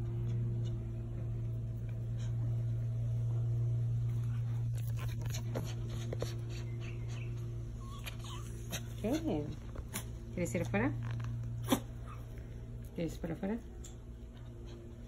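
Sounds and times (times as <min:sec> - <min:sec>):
steady low hum: 0:00.0 - 0:15.0
small dog whining: 0:06.4 - 0:09.4, 0:11.6 - 0:12.3.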